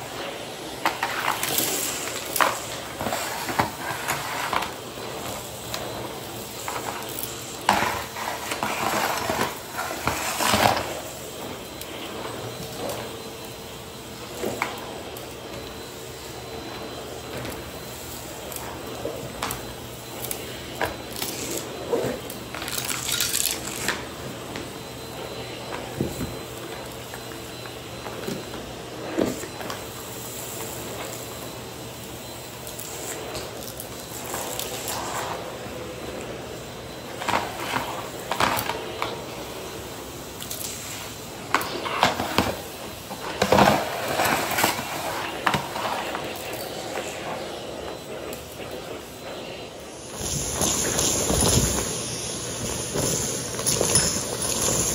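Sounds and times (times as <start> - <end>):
vacuum cleaner running: 0.0 - 54.9
grit rattling in vacuum: 50.1 - 54.9.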